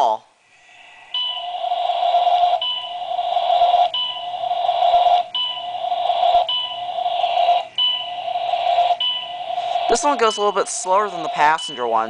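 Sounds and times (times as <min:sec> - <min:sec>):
elevator running rush: 0:01.3 - 0:12.0.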